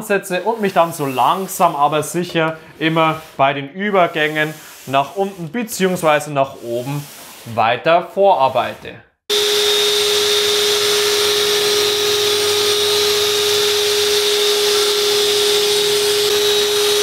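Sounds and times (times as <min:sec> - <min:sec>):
drywall sander humming and hissing: 0:09.3 - 0:17.0.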